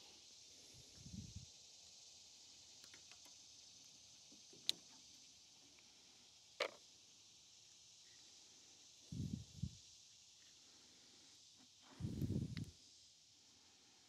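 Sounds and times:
faint outdoor hiss: 0:00.0 - 0:14.0
faint ticks: 0:02.7 - 0:06.0, 0:11.6 - 0:12.8.

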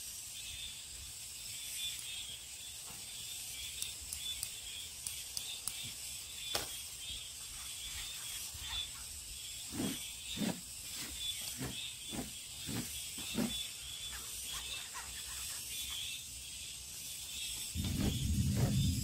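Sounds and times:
low rumbling rustle: 0:17.8 - 0:19.0.

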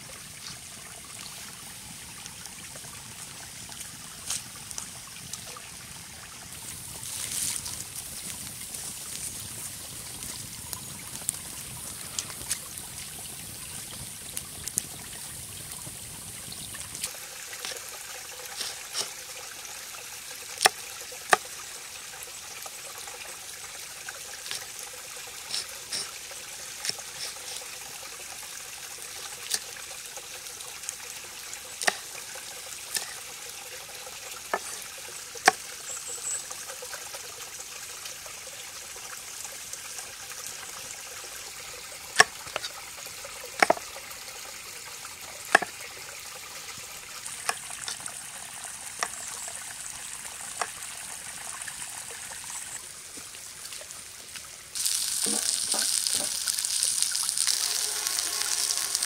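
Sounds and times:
stream trickling: 0:00.0 - 0:59.0
loud hiss: 0:54.8 - 0:59.0.

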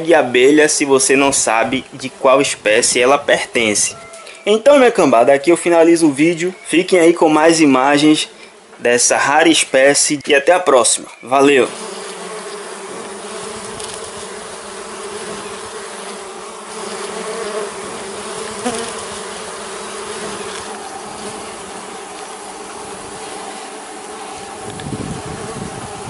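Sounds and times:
bees buzzing: 0:05.6 - 0:26.0.

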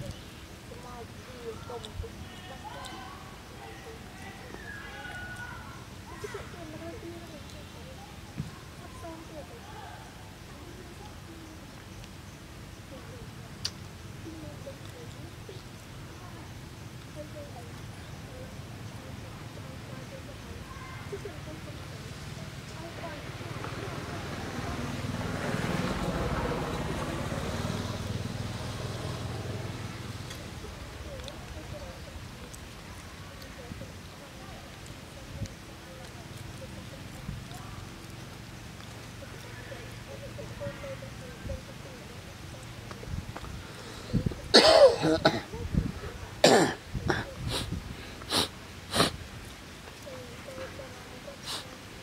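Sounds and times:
throaty coughing vocal sounds: 0:44.5 - 0:45.5, 0:46.4 - 0:47.3.

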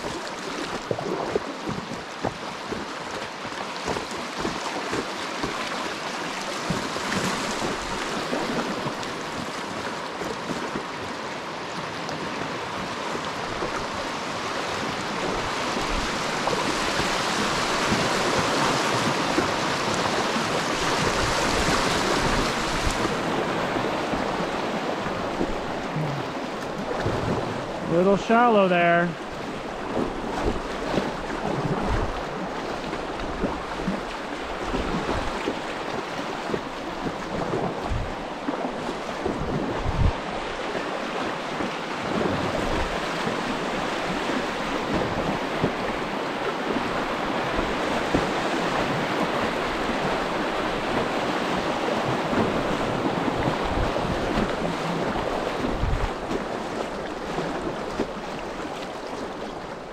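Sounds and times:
creek water rushing: 0:00.0 - 0:59.9
wind gusts on microphone: 0:12.7 - 0:28.1, 0:28.7 - 0:59.9.

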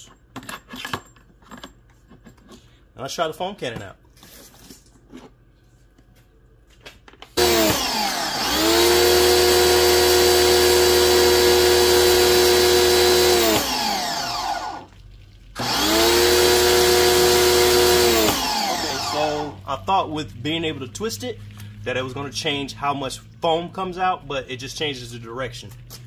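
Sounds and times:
pressure washer motor whining: 0:07.4 - 0:14.9, 0:15.6 - 0:23.0.

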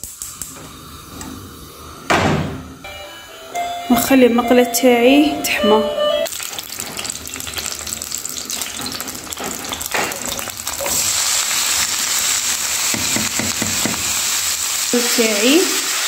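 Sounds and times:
oil sizzling in a frying pan: 0:06.3 - 0:16.0.

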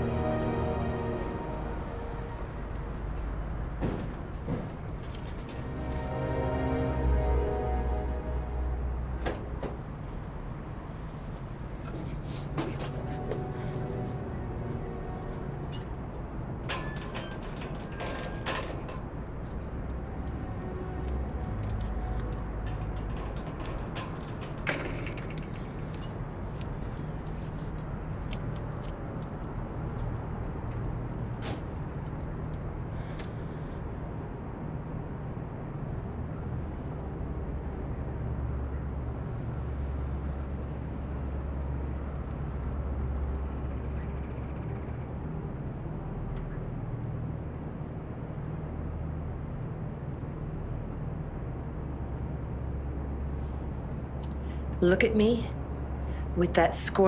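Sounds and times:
high-pitched hum: 0:00.0 - 0:18.5
low outdoor rumble: 0:00.0 - 0:57.0.

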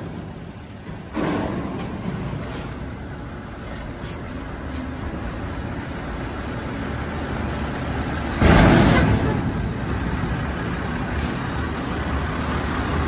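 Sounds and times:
garbage truck running: 0:00.0 - 0:13.0
sudden loud burst of noise: 0:08.4 - 0:10.0.

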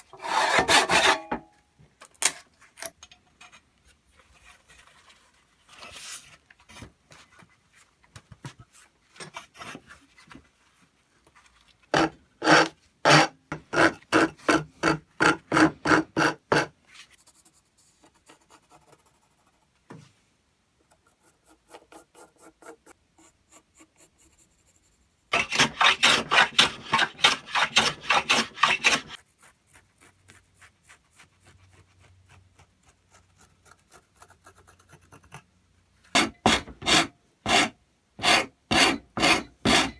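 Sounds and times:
hand tool rasping on wood: 0:00.2 - 0:01.2, 0:25.3 - 0:29.2, 0:36.2 - 0:39.9
pencil scratching on wood: 0:20.9 - 0:35.5.

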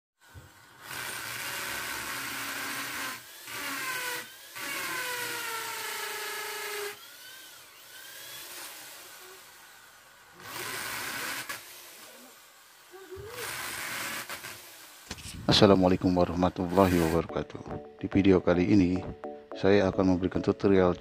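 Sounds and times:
electric drill boring into wall: 0:00.2 - 0:15.4, 0:16.5 - 0:17.2.

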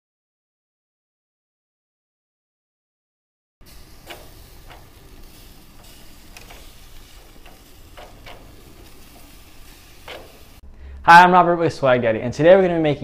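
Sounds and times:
gas grill hiss: 0:03.6 - 0:10.6
metal tongs clicking on skewers: 0:03.7 - 0:10.6.

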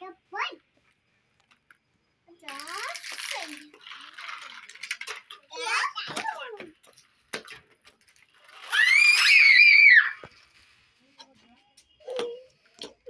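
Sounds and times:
child squealing: 0:08.6 - 0:10.2.

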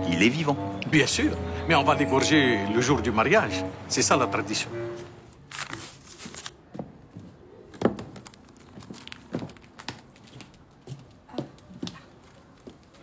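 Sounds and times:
paper rustling and crinkling: 0:05.3 - 0:06.9, 0:07.9 - 0:10.5.

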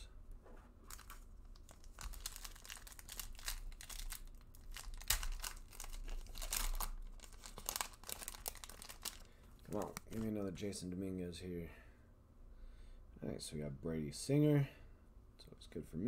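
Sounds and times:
foil wrapper tearing and crinkling: 0:00.9 - 0:10.2.

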